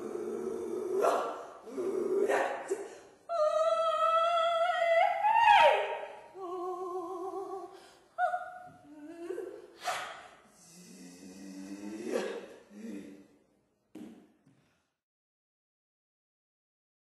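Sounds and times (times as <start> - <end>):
person singing wordless tones: 0.0 - 9.7.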